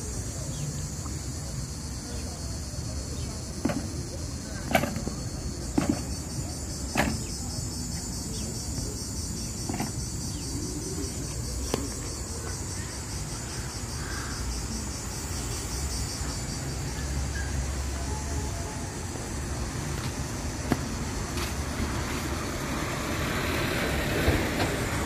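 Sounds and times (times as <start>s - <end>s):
cicadas buzzing: 0.0s - 25.0s
road traffic rumble: 0.0s - 25.0s
sharp knocks: 3.6s - 7.5s.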